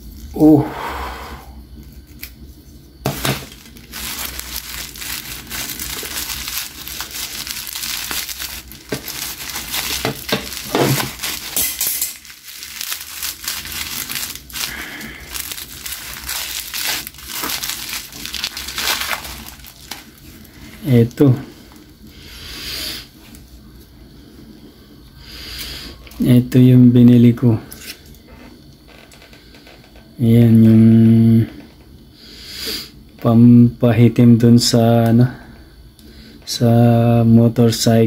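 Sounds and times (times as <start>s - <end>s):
bubble wrap crinkling and crackling: 3.0s - 22.0s.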